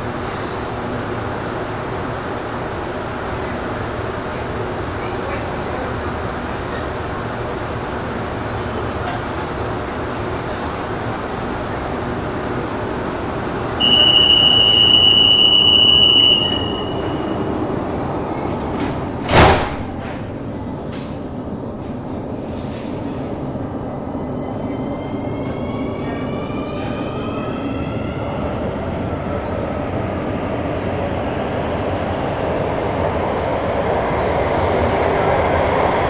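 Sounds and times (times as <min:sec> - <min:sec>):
high door-warning tone: 0:13.8 - 0:17.5
doors shutting thud: 0:18.8 - 0:20.2.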